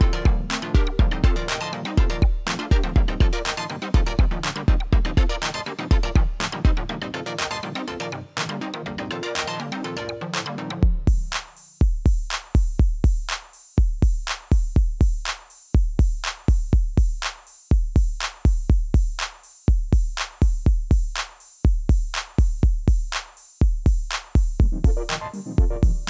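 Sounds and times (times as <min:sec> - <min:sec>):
electronic beat music: 0:00.0 - 0:13.2, 0:21.9 - 0:26.0.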